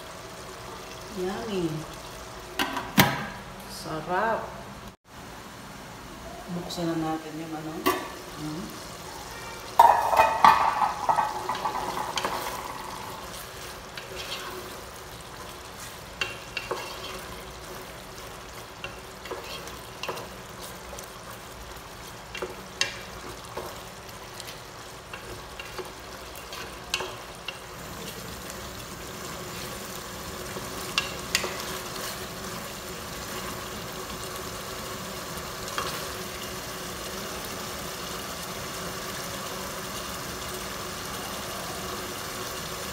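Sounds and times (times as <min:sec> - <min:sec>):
sauce sizzling: 0:00.0 - 0:03.4, 0:04.9 - 0:42.9
spoon knocking against pot: 0:09.8 - 0:12.9
wooden spoon stirring food: 0:09.8 - 0:36.5.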